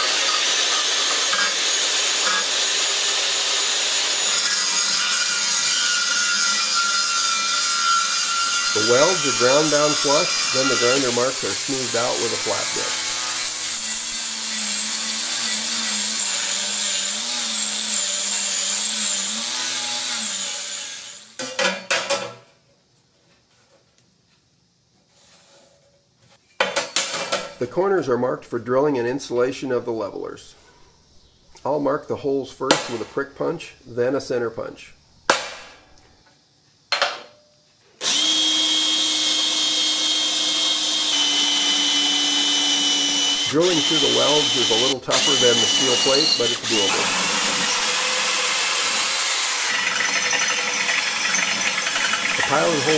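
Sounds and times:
angle grinder grinding steel: 0:00.0 - 0:21.4, 0:38.0 - 0:52.9.

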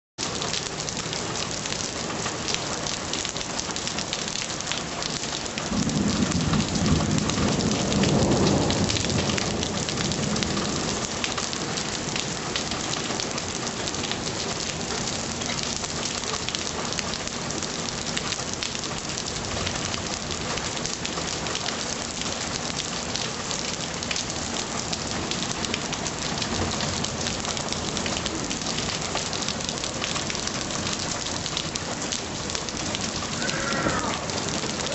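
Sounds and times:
heavy rain pouring: 0:00.2 - 0:34.9
low rumble of thunder: 0:05.7 - 0:11.2, 0:33.1 - 0:34.9.

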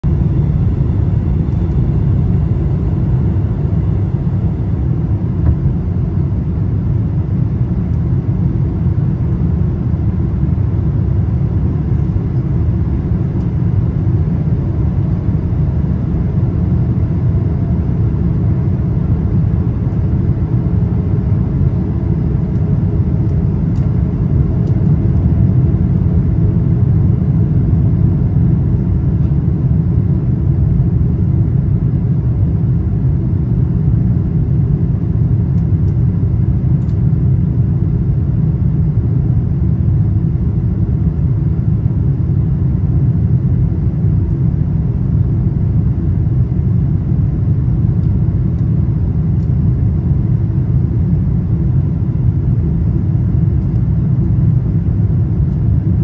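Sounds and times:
aircraft cabin engine rumble: 0:00.0 - 0:56.0.

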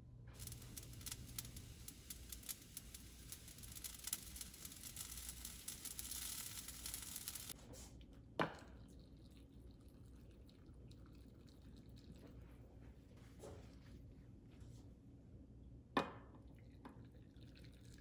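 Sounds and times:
brine boiling in a saucepan: 0:00.0 - 0:07.6, 0:08.6 - 0:13.8, 0:16.5 - 0:18.0
liquid dripping and trickling into jars: 0:00.4 - 0:07.6, 0:08.6 - 0:12.9, 0:16.5 - 0:18.0.

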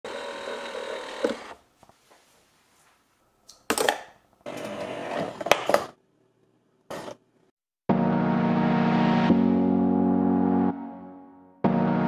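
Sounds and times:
small machine whirring: 0:00.1 - 0:01.6.

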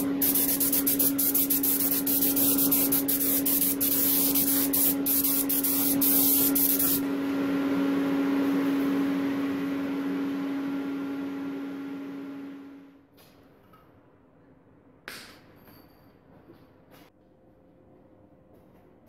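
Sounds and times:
pressurised spray hissing: 0:00.0 - 0:07.0
steady hum: 0:00.0 - 0:13.0.

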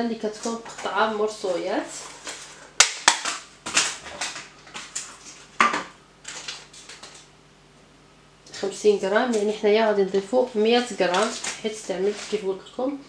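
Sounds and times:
crackling rustling scrapes: 0:00.3 - 0:02.7, 0:03.6 - 0:05.6, 0:06.2 - 0:07.3, 0:09.1 - 0:13.0.

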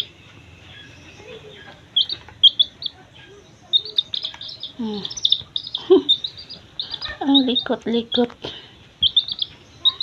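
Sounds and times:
chick peeping: 0:00.0 - 0:10.0.

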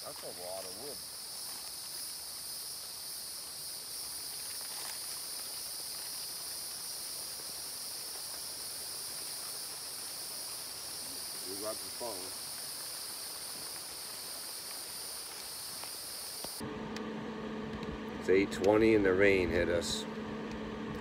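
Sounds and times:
insects chorus droning: 0:00.0 - 0:16.8.

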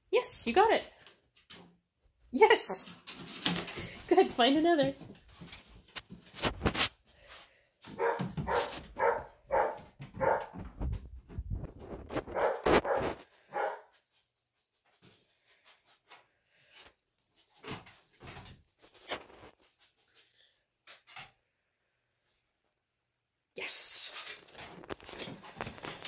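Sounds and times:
faint scuffling: 0:02.5 - 0:14.0
small dog barking: 0:08.0 - 0:10.6, 0:12.3 - 0:13.9.

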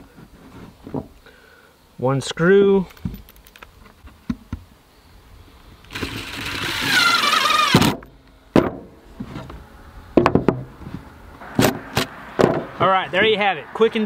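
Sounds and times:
impact driver whirring: 0:05.9 - 0:08.1.

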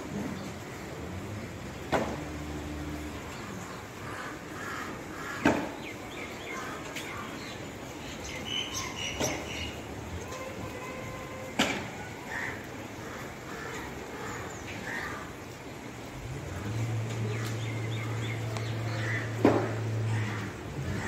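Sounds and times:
low engine hum: 0:00.0 - 0:04.3, 0:15.6 - 0:21.0
birds chirping and calling: 0:03.0 - 0:10.7, 0:16.6 - 0:21.0.

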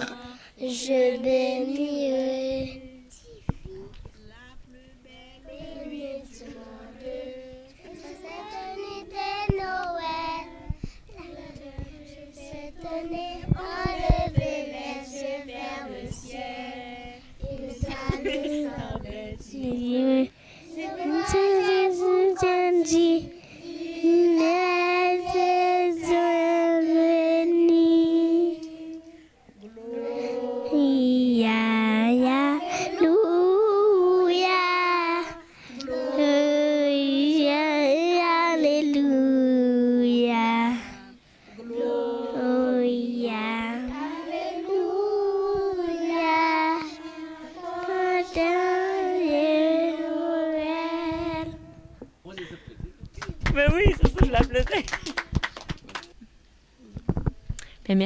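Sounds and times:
children singing unaccompanied: 0:00.0 - 0:51.8.

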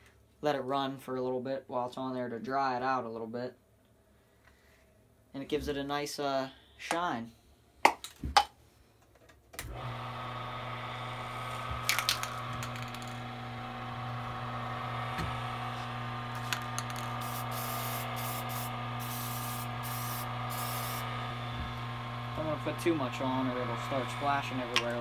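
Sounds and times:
wood lathe motor hum: 0:09.6 - 0:25.0
aerosol spray hissing: 0:16.4 - 0:21.3.

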